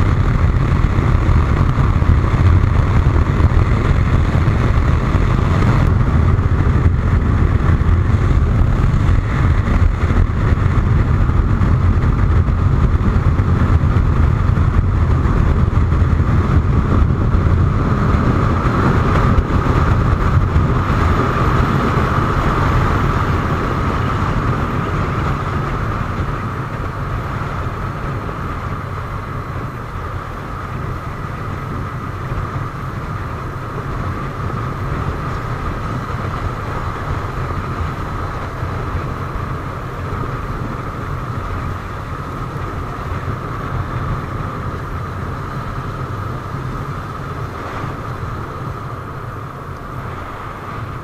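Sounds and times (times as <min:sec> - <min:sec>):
motorcycle engine drone: 0:00.0 - 0:51.0
wind rushing: 0:00.0 - 0:51.0.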